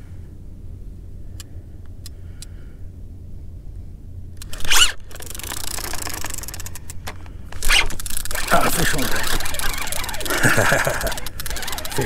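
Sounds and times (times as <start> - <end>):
faint ticks: 1.4 - 2.6.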